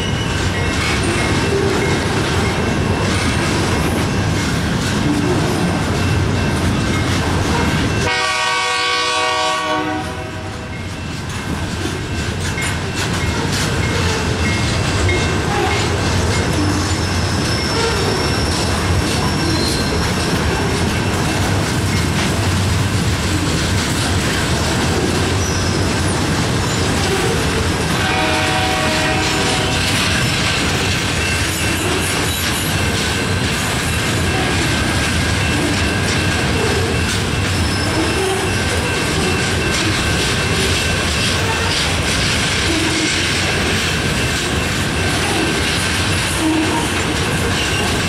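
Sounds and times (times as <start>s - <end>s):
train rumbling past on track: 0.0s - 48.0s
train horn: 8.0s - 10.7s, 27.9s - 29.9s.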